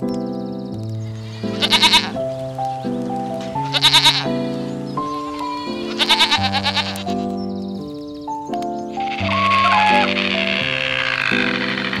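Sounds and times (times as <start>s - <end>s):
soft piano music: 0.0s - 12.0s
goat bleating: 1.2s - 2.2s, 3.6s - 4.7s, 5.3s - 7.2s, 9.0s - 11.3s.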